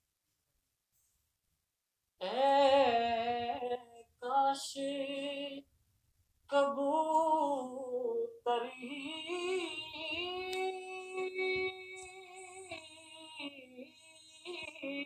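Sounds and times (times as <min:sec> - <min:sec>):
person singing unaccompanied: 0:02.2 - 0:05.7, 0:06.5 - 0:15.0.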